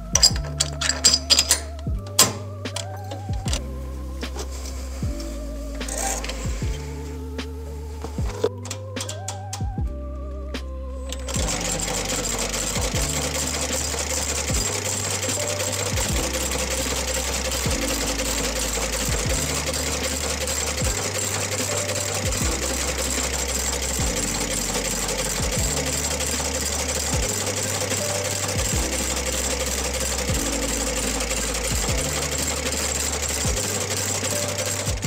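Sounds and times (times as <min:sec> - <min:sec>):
stitching machine running: 0:11.2 - 0:35.0.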